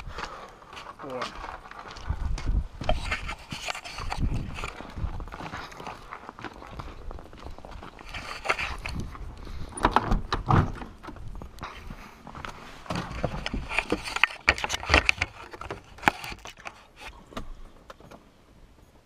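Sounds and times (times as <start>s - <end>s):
clunks and knocks of climbing in: 9.7s - 11.3s.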